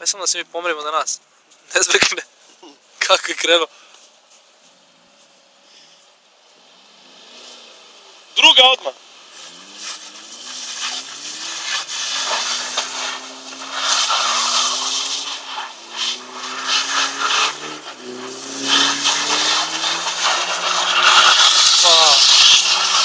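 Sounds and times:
car engine revving hard: 6.5 - 23.0
tyres spinning in snow: 8.6 - 23.0.

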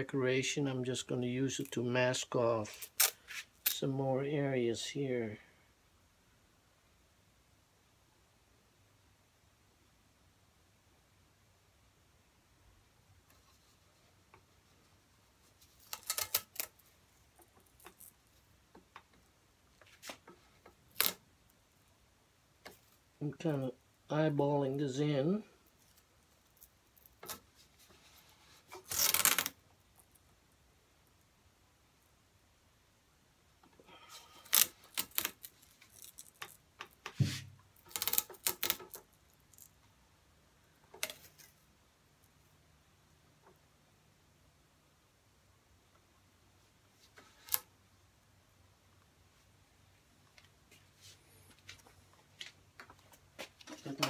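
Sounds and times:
tape crackling off roll: 15.6 - 19.1, 19.8 - 21.3, 28.6 - 29.7, 34.2 - 39.7.

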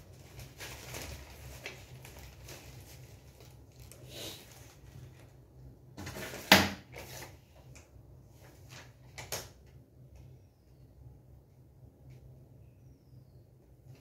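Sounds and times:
paper rustling: 0.0 - 5.4.

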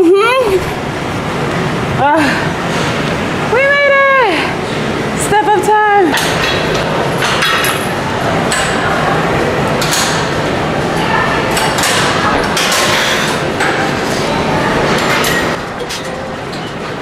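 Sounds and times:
gym equipment clanking: 6.1 - 9.0, 11.4 - 14.2, 14.8 - 17.0.

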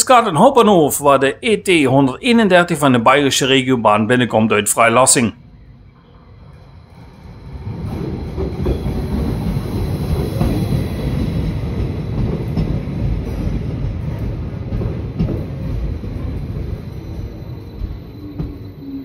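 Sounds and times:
train wheels rumbling on rails: 5.9 - 19.0.

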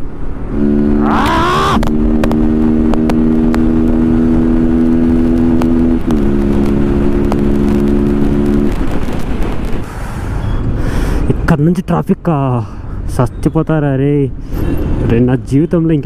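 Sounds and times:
short rising whine: 0.9 - 1.9.

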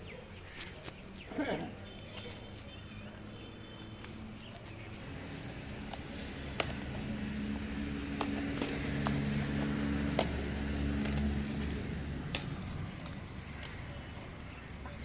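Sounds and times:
low engine hum: 2.7 - 15.0
sharp clicks: 10.0 - 13.8.

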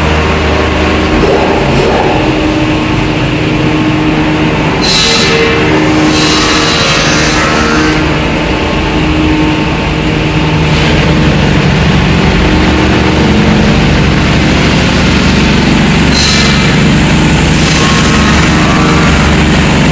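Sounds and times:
machine drone with low hum: 0.0 - 19.9
hiss: 6.0 - 8.0.

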